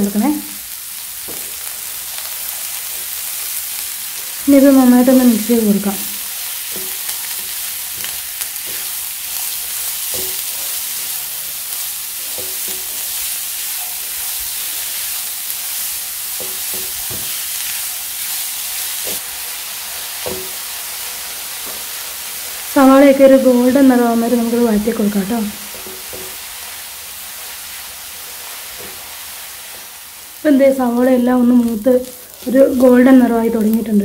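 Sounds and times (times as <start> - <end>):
onions sizzling in butter: 0.0 - 34.0.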